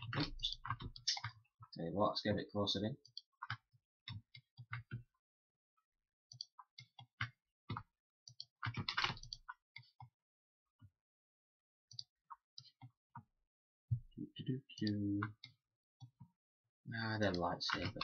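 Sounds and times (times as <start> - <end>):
keyboard clicks: 17.2 - 18.0.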